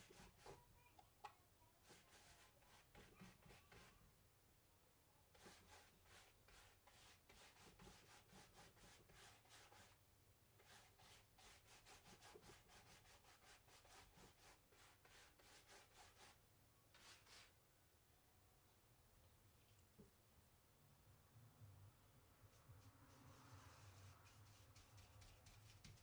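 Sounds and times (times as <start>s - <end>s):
brush scrubbing fabric: 0.0s - 0.6s, 1.8s - 4.0s, 5.4s - 10.0s, 10.6s - 16.4s, 22.5s - 26.0s.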